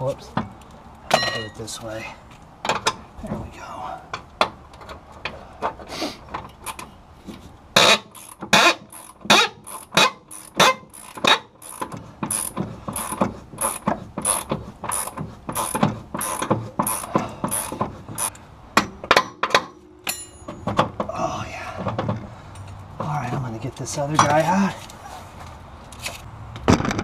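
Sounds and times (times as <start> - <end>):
ratchet wrench clicking: 7.8 - 18.4.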